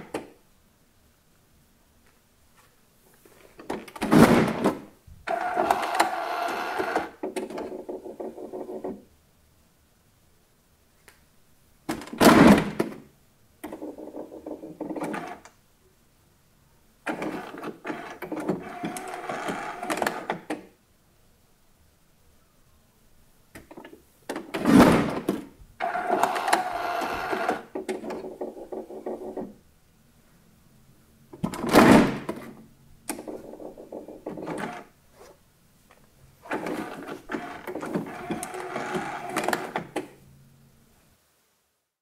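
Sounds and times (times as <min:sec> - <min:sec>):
printer carriage motor whirring: 0:05.3 - 0:07.2, 0:17.1 - 0:20.4, 0:25.8 - 0:27.7, 0:36.5 - 0:40.0.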